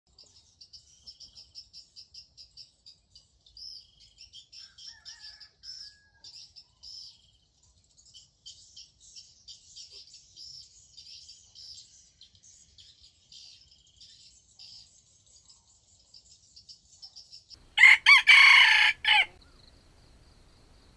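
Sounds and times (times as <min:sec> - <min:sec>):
small birds chirping: 0:00.1 - 0:20.9.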